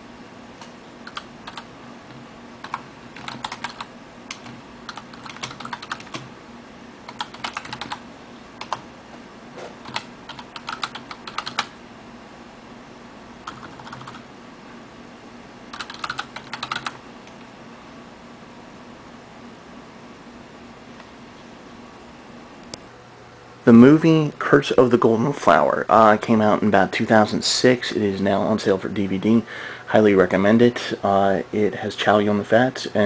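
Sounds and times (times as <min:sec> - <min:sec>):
steady low hum: 0:00.0 - 0:33.0
typing on computer keyboard: 0:01.0 - 0:01.7, 0:02.6 - 0:06.3, 0:07.1 - 0:08.0, 0:08.6 - 0:08.8, 0:09.8 - 0:11.7, 0:13.4 - 0:14.2, 0:15.7 - 0:17.0.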